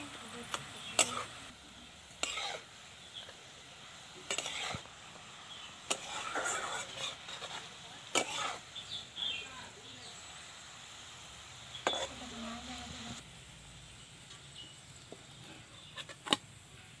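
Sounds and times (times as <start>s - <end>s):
faint sizzle: 0.0s - 17.0s
spatula knocking and scraping metal: 4.3s - 4.9s.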